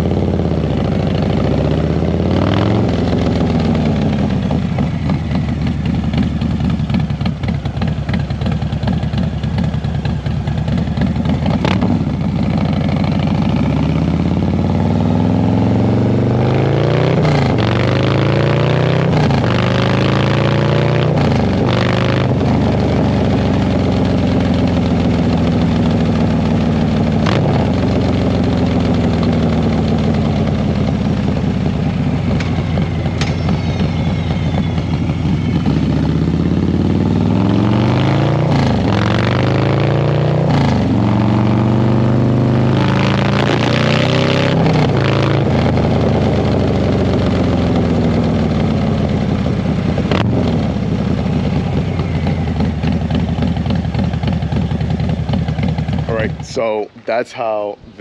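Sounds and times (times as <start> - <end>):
motorcycle engine revving: 0.0 - 57.2
wind and road rush: 0.0 - 58.0
exhaust crackles: 50.0 - 58.0.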